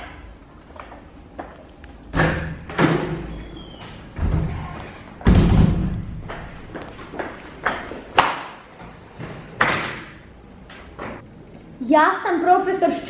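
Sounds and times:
heavy thud: 5.2s - 6.4s.

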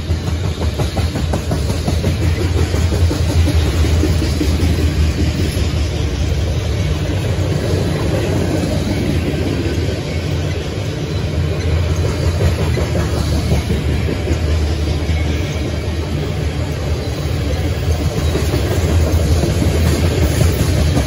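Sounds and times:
freight train wheels rumbling on rails: 0.0s - 21.0s.

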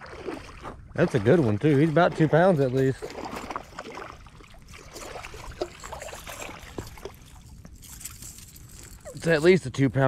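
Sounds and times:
fish splashing in water: 0.0s - 7.5s.

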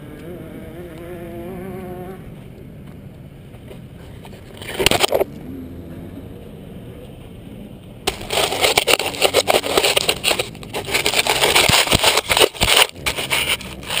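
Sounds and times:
glove scraping on microphone: 4.0s - 5.3s, 8.1s - 14.0s.

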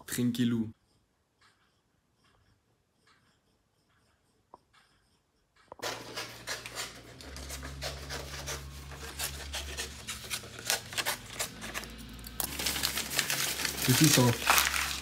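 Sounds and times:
paper rustling: 5.8s - 15.0s
scissors snipping paper: 5.8s - 15.0s.

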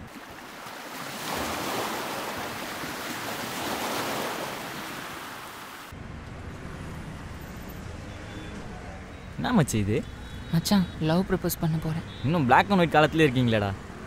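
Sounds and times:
sea waves breaking on beach: 0.0s - 5.9s.

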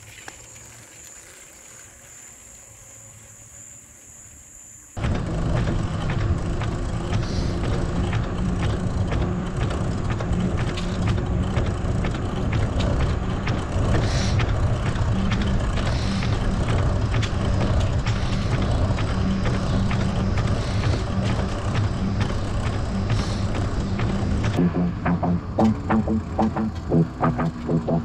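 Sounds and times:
bike clicks and rattles: 0.0s - 2.6s, 5.0s - 24.6s
bicycle tyres rumbling: 0.0s - 28.0s.

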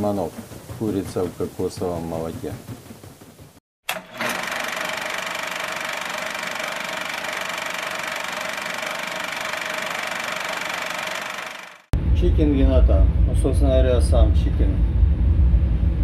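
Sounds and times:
mechanical whir with rattle: 3.9s - 11.9s.

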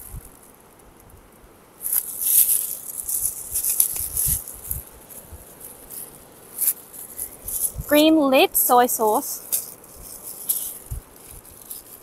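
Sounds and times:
plastic gloves crinkling: 1.8s - 12.0s.

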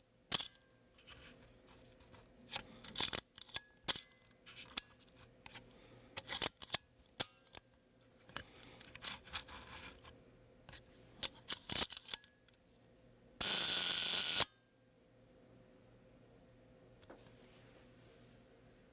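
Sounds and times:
camera shutter buzz: 13.4s - 14.5s.

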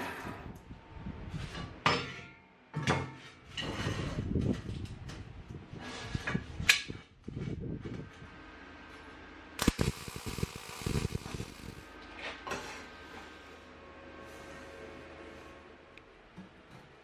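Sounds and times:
steady low noise: 9.6s - 12.0s.

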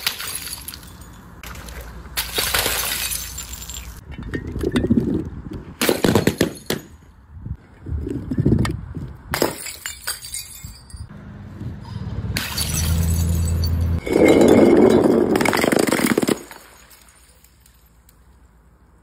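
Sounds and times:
glass bottles smashing on concrete: 0.0s - 1.4s, 2.2s - 4.0s, 5.8s - 7.0s, 9.3s - 11.1s, 12.4s - 17.9s
glass shards clinking: 0.0s - 1.4s, 2.3s - 4.0s, 9.4s - 11.1s, 12.4s - 17.9s.

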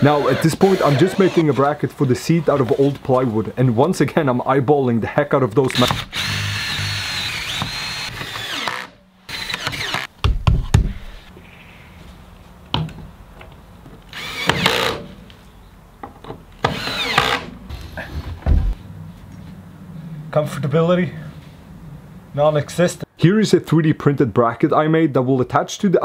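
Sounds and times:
power tool cutting plywood: 5.8s - 10.1s.

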